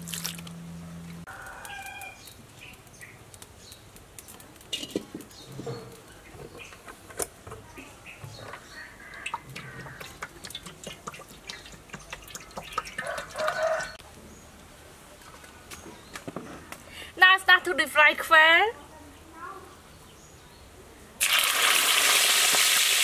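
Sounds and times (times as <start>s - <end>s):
chickens clucking: 7.8s - 14.0s.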